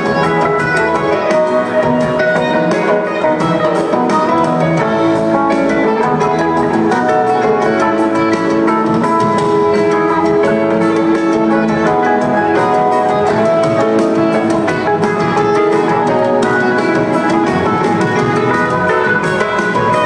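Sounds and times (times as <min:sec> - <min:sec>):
bass guitar: 0:00.0 - 0:20.0
drum kit: 0:00.0 - 0:20.0
electric guitars: 0:00.0 - 0:20.0.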